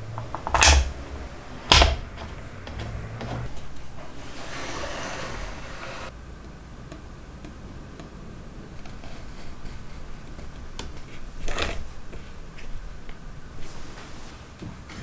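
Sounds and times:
short brushing noise: 2.9 - 6.1.

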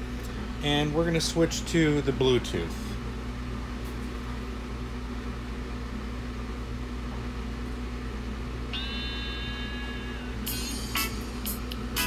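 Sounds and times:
low mains hum: 0.0 - 12.0
held electronic tone: 8.7 - 12.0.

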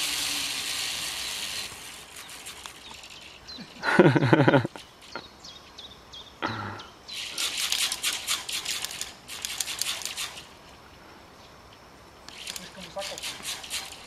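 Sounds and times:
zip-line trolley rattling on cable: 0.0 - 5.2, 7.1 - 10.6, 12.3 - 14.0.

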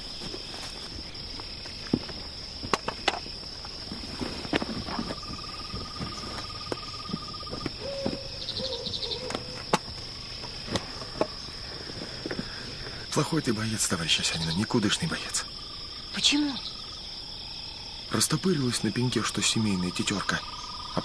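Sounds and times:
insects chirring: 0.0 - 21.0
lower animal call: 5.0 - 9.7.

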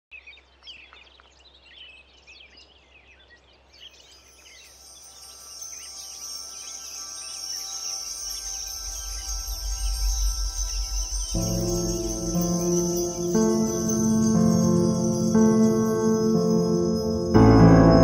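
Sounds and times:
small birds chirping: 0.1 - 18.0
high insect trill: 4.1 - 18.0.

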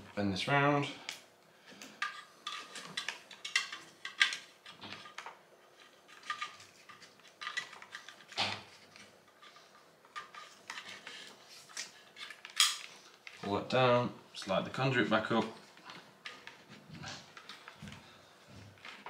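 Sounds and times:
cable clicking and scraping in conduit: 1.0 - 13.6.

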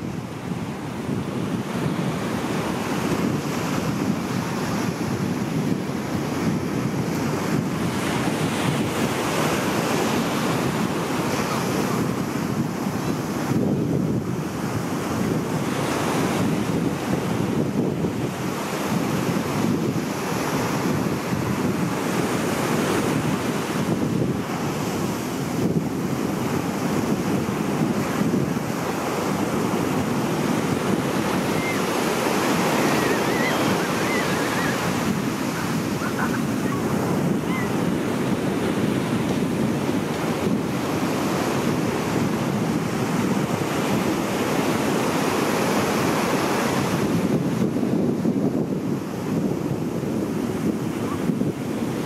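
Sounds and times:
wind buffeting microphone: 0.0 - 52.0
surf breaking over rocks: 27.8 - 41.0
faint bird calls: 31.6 - 31.9, 32.8 - 34.9, 35.6 - 36.9, 37.5 - 37.7.

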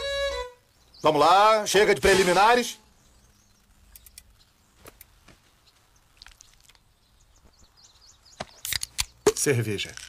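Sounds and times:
faint bird chirps: 0.0 - 1.8, 2.7 - 9.8
sharp clicks: 3.9 - 5.2, 8.4 - 10.0.

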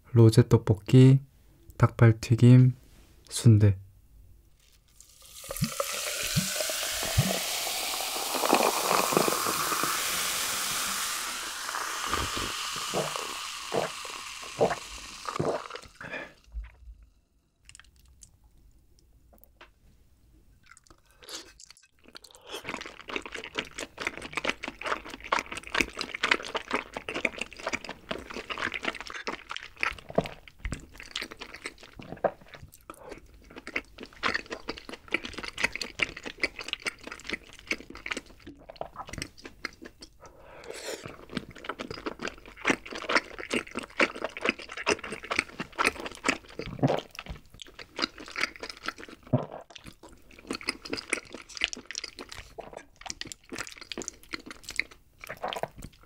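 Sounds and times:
soda fizzing on ice: 5.0 - 16.1
soda pouring into glass: 5.0 - 16.1
close chewing mouth sounds: 20.6 - 56.0.

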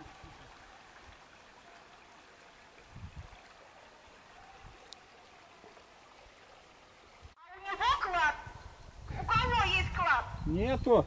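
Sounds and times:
river flowing: 0.0 - 8.4.

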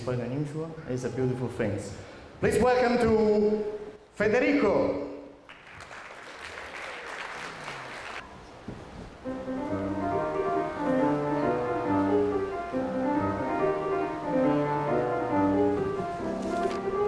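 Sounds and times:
grand piano classical piece: 9.1 - 17.0.

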